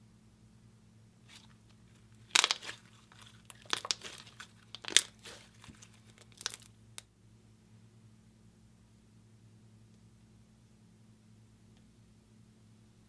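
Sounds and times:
slime crackling and popping: 0:02.1 - 0:07.1.

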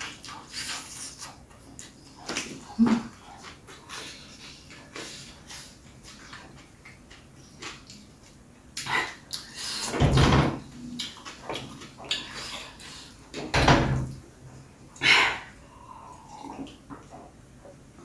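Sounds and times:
person chewing food: 0:00.0 - 0:09.9, 0:10.6 - 0:13.4.

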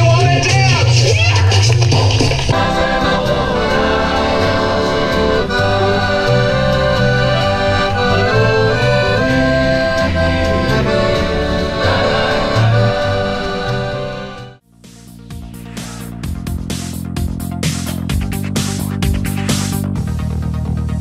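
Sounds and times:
bass line: 0:00.0 - 0:21.0
accordion: 0:02.5 - 0:14.6
guitars playing: 0:02.5 - 0:14.6.

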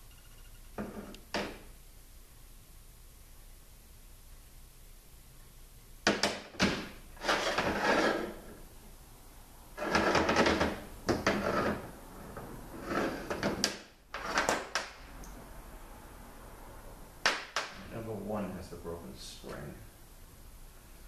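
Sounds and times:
metal scraping and sliding: 0:07.2 - 0:08.6, 0:09.8 - 0:14.6.

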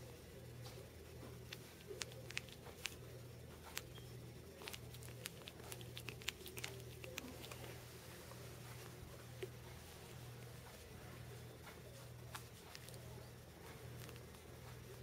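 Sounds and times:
low steady hum: 0:00.0 - 0:15.0
puppy claws clicking: 0:01.3 - 0:03.0, 0:04.6 - 0:07.7
soft rustling on blanket: 0:07.3 - 0:15.0.

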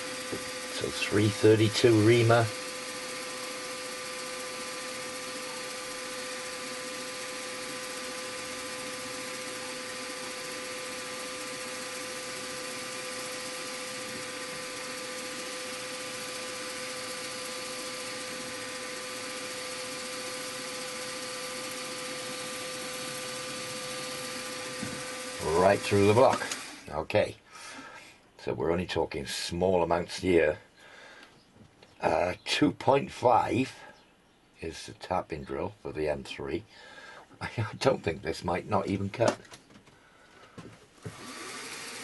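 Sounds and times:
mill spindle whine: 0:00.0 - 0:26.9, 0:40.6 - 0:42.0.

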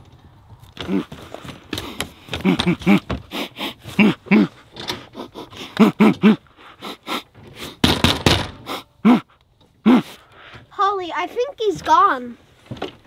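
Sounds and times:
person hooting and grunting: 0:03.9 - 0:04.6, 0:09.0 - 0:10.2
knocks on plywood wall: 0:07.8 - 0:08.6.

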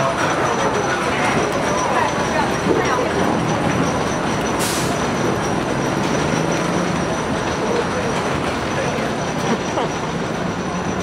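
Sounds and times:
roller coaster train on track: 0:00.0 - 0:11.0.

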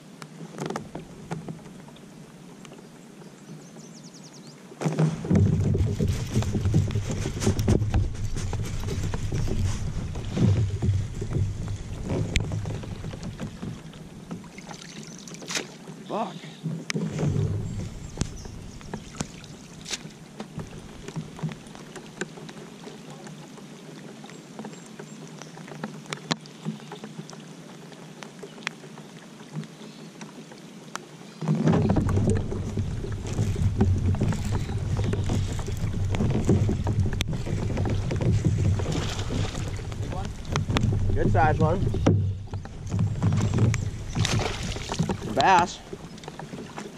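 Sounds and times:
low uneven rumble: 0:05.0 - 0:14.8, 0:16.4 - 0:22.2, 0:31.7 - 0:46.9.

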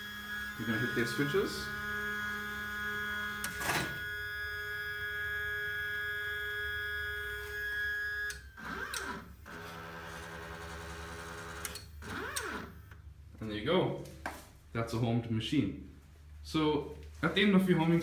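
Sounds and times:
stepper motor whine: 0:00.0 - 0:12.8.

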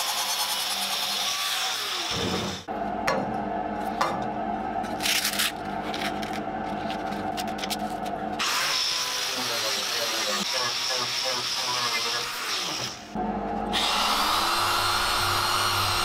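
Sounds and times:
motor hum: 0:02.1 - 0:10.8, 0:11.7 - 0:16.0
angle grinder grinding steel: 0:08.4 - 0:13.1, 0:13.7 - 0:16.0.

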